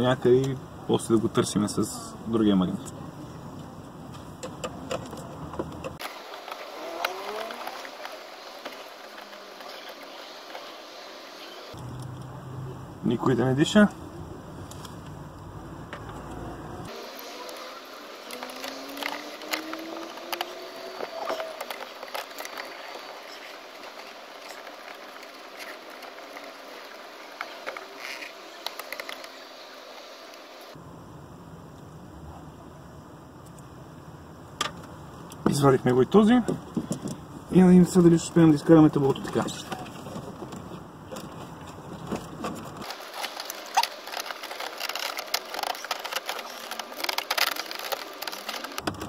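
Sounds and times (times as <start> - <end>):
plastic clicking and scraping: 4.1 - 10.7, 18.2 - 29.4, 39.1 - 49.0
steady hiss: 6.0 - 16.0, 16.8 - 49.0.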